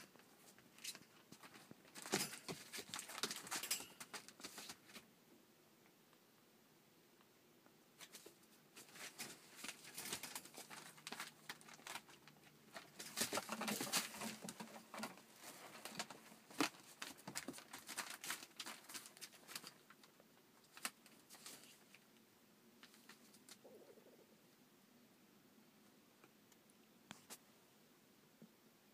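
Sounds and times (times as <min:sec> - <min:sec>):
paws scrabbling on newspaper and wire: 0:00.0 - 0:05.0, 0:08.0 - 0:22.0.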